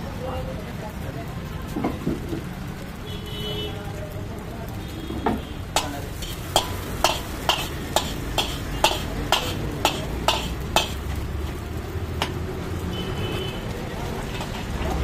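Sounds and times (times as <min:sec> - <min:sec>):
metal ladle scraping iron wok: 0:05.7 - 0:11.1.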